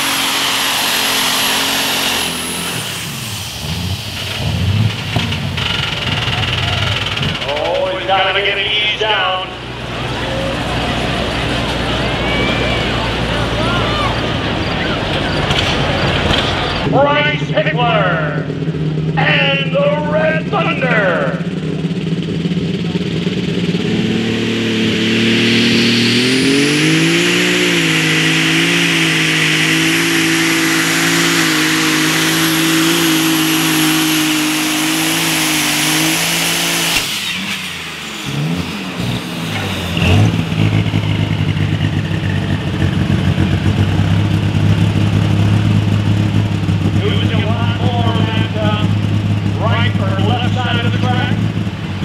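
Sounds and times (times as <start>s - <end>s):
diesel tractor engine at full power: 0.0s - 52.0s
engine idling: 0.0s - 52.0s
thin high turbo whistle: 24.9s - 33.7s.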